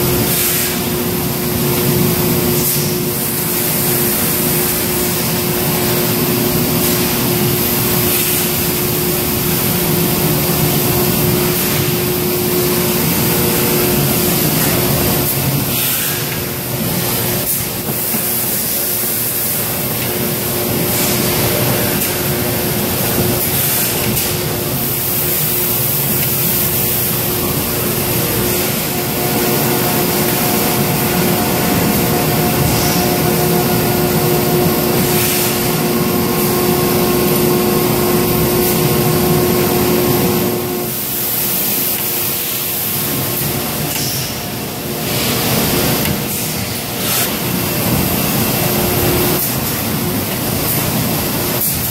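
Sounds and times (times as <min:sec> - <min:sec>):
machinery hiss: 0:00.0 - 0:51.9
machinery hum: 0:00.0 - 0:51.9.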